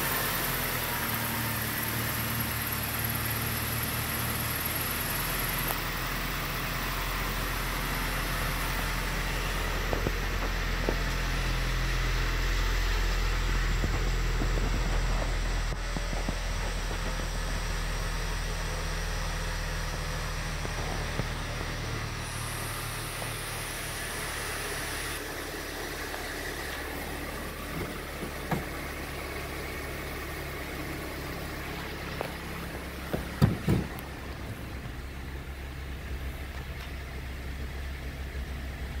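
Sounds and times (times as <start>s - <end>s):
car engine idling: 0.0s - 39.0s
sharp knocks: 33.1s - 34.0s.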